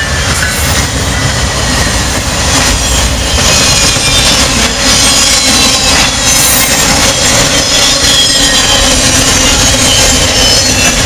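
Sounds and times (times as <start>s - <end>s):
train wheels rumbling on rails: 0.0s - 11.0s
high-pitched wheel squeals: 2.7s - 11.0s.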